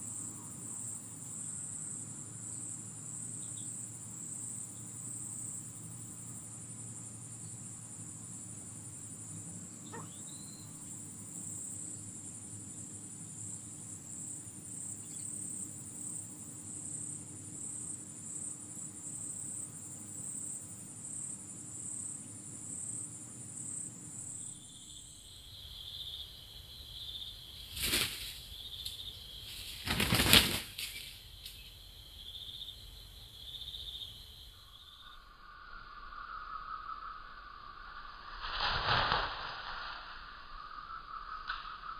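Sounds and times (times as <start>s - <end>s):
insects trilling chorus: 0.0s - 41.9s
wingbeats of fighting cocks: 27.7s - 28.4s, 29.5s - 31.1s.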